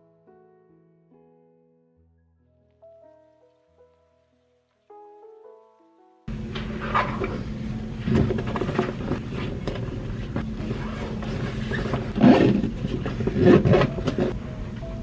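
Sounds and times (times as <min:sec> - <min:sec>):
low hum and rumble: 0:06.3 - 0:15.0.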